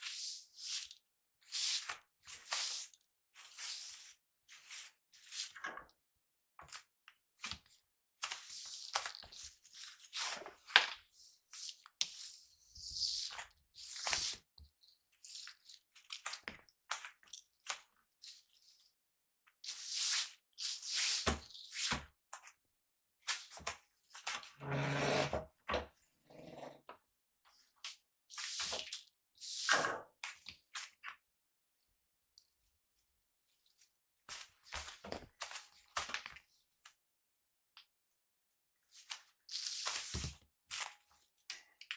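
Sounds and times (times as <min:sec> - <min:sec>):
broom sweeping a floor mat: 0:00.0 - 0:05.6, 0:19.6 - 0:22.1, 0:27.8 - 0:29.9, 0:38.9 - 0:40.9.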